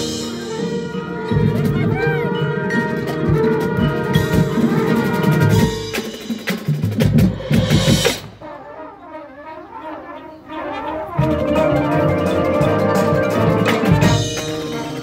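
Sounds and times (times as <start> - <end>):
snare and bass drums: 2.9 - 8.4, 11.2 - 15.0.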